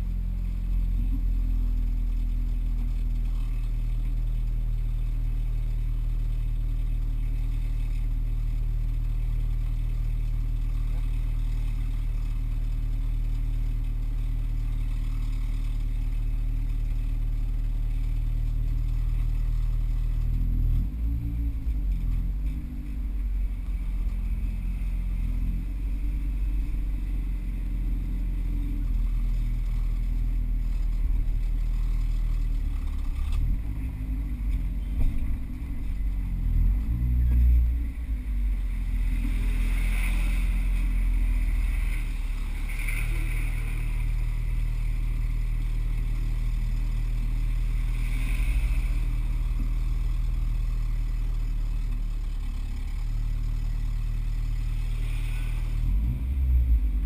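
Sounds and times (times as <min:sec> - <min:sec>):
car engine from inside cabin: 0:00.0 - 0:57.0.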